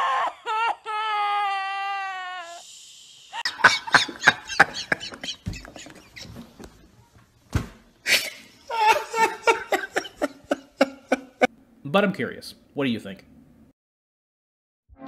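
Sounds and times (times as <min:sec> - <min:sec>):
man laughing hard: 0:03.4 - 0:06.5, 0:08.1 - 0:11.5.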